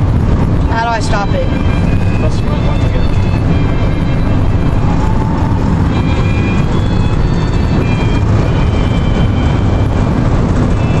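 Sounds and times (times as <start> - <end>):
road and wind noise in car: 0.0 - 11.0.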